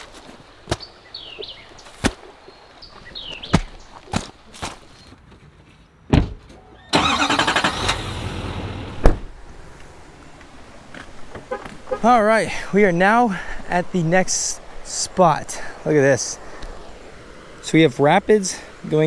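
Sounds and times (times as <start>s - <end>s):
footsteps crunching through brush: 0.0s - 5.9s, 9.6s - 12.0s
bird chirps: 0.8s - 4.0s
truck door shutting: 6.1s - 9.3s
sharp thump: 9.0s - 9.3s.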